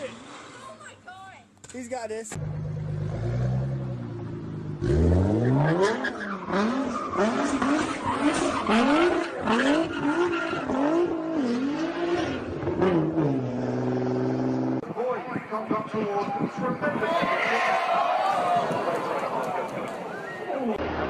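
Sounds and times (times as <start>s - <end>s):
car engine revving: 2.3s - 14.8s.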